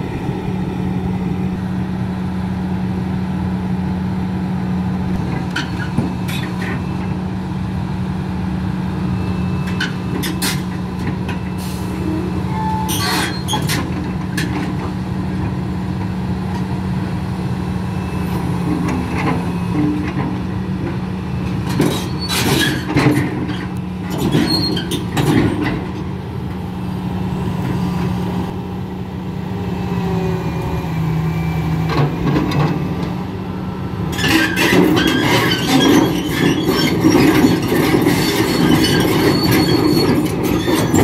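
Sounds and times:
diesel engine running: 0.0s - 41.0s
track squeal: 9.0s - 13.9s, 21.7s - 25.8s, 34.1s - 41.0s
steel tracks clanking: 9.6s - 15.5s, 18.7s - 26.1s, 34.0s - 41.0s.

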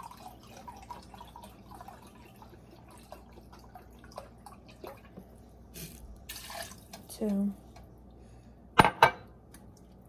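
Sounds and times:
liquid trickling into a glass cup: 0.0s - 5.4s.

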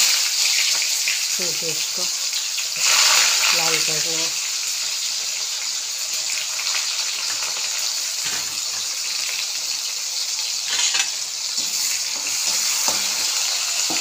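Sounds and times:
onions sizzling in oil: 0.0s - 14.0s
spatula scraping: 10.7s - 14.0s.

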